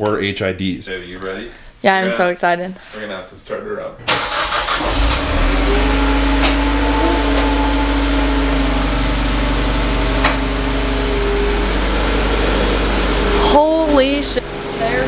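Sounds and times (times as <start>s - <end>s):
car engine idling: 4.1s - 15.0s.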